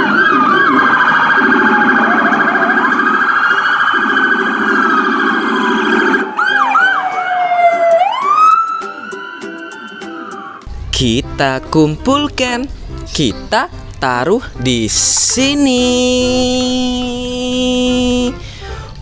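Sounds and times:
police sirens wailing and yelping: 0.0s - 11.4s.

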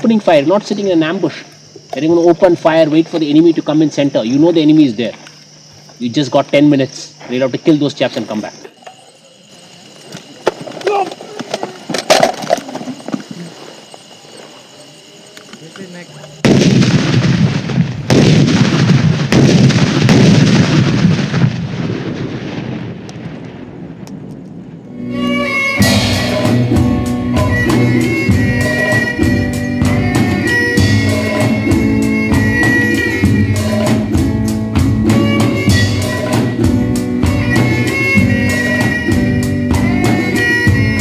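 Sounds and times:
gunfire burst: 16.4s - 22.7s
band music: 25.0s - 41.0s
steady drum beat: 25.6s - 41.0s.

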